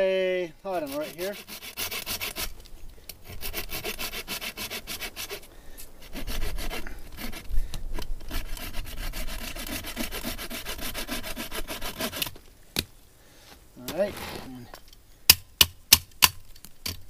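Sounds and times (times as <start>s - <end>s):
hand saw cutting pole: 0.7s - 2.5s, 3.2s - 7.5s, 8.2s - 12.4s.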